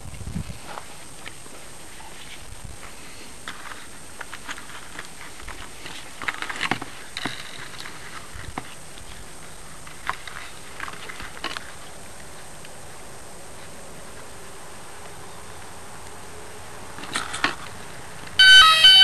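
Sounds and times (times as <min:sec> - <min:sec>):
hands handling foam model plane: 0:00.2 - 0:12.7.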